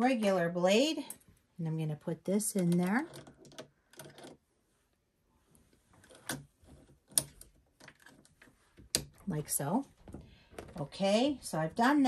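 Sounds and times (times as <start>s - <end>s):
plastic clicks: 6.1s - 9.2s.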